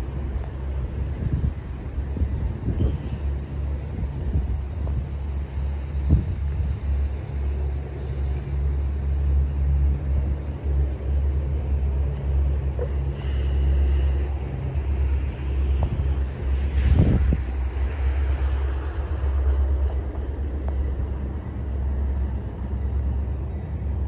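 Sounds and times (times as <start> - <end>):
diesel locomotive rumble: 0.0 - 24.0.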